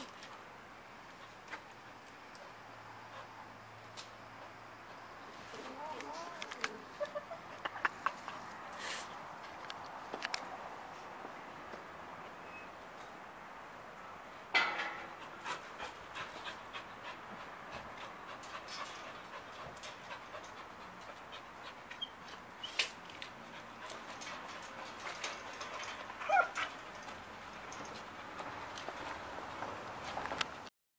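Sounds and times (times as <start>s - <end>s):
dog panting: 3.0s - 3.6s, 15.2s - 22.5s, 23.2s - 27.2s
dog whining: 26.2s - 26.7s.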